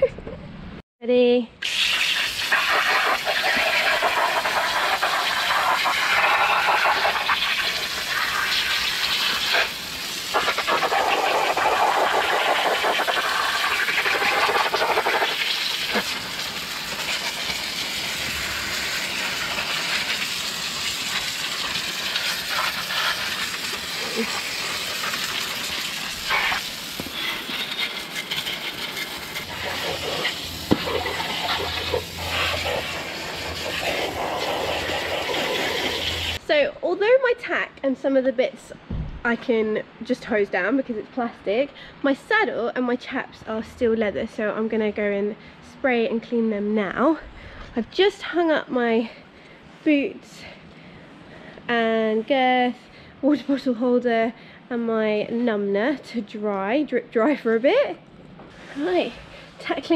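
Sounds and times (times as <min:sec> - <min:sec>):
hose spraying water: 0:01.6 - 0:36.4, 0:58.6 - 0:59.9.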